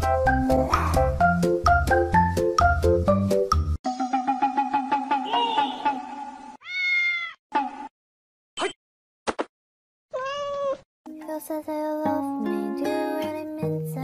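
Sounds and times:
cat meowing and chirping: 0:06.6 - 0:07.4, 0:10.1 - 0:10.8.

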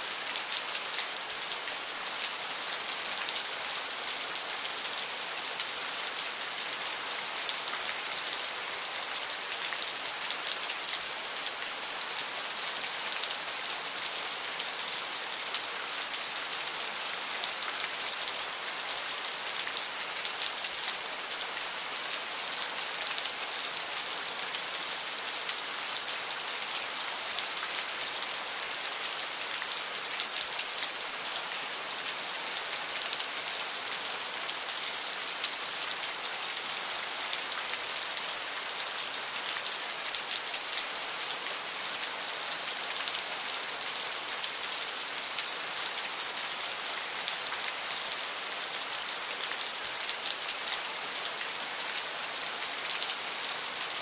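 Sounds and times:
steady rain: 0:00.0 - 0:54.0.

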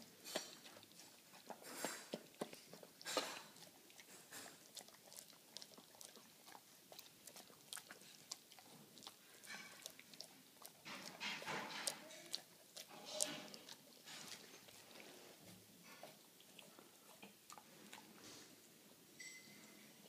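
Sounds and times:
dog chewing and licking: 0:00.0 - 0:18.6.

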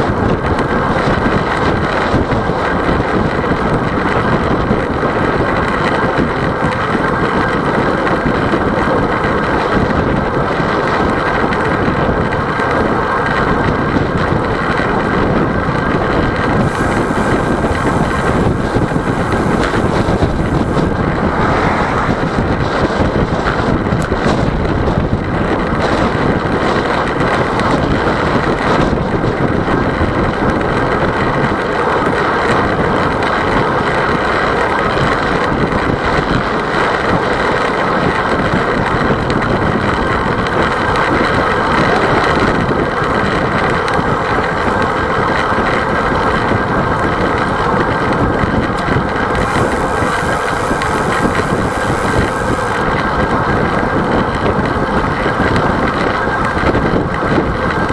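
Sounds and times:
tyre and road noise: 0:00.0 - 0:34.2, 0:37.2 - 0:57.9
wind rushing over microphone: 0:00.0 - 0:57.9
thin high hiss: 0:16.6 - 0:20.9, 0:49.4 - 0:52.8.

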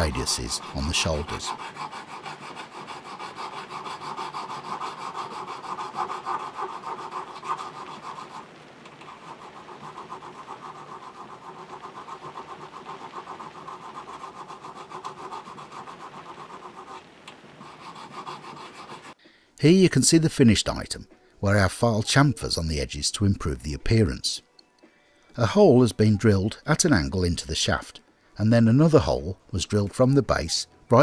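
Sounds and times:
file rasping on metal: 0:00.0 - 0:17.0, 0:17.6 - 0:19.2.

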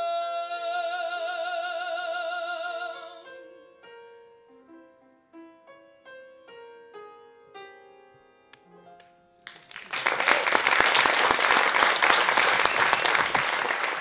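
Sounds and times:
audience applause: 0:09.5 - 0:14.0.

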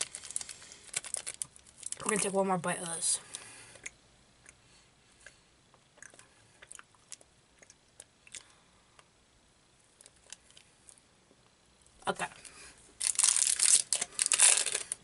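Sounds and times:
faint chewing: 0:03.3 - 0:09.1.

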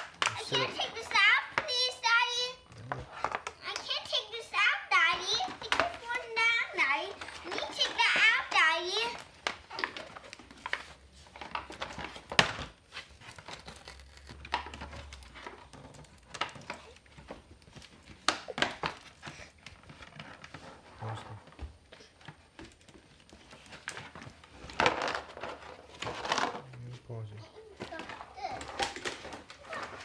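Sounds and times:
toy packaging crinkling: 0:00.0 - 0:01.9, 0:05.1 - 0:12.5, 0:13.1 - 0:20.7.

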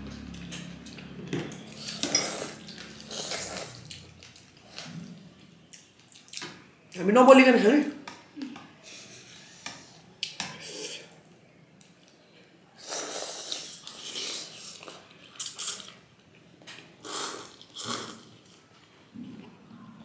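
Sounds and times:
person slurping noodles: 0:01.8 - 0:03.8, 0:12.8 - 0:16.0, 0:17.0 - 0:18.4.

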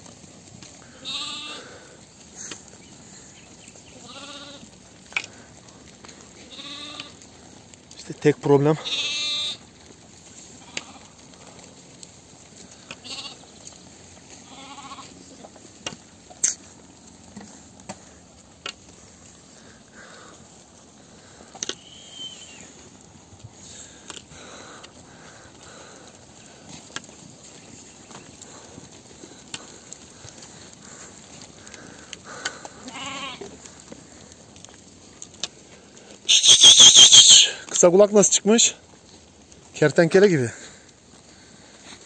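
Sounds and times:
sheep bleating: 0:00.6 - 0:02.0, 0:03.8 - 0:04.8, 0:06.1 - 0:07.3, 0:08.8 - 0:09.8, 0:10.4 - 0:11.6, 0:12.6 - 0:15.4, 0:28.4 - 0:33.8.

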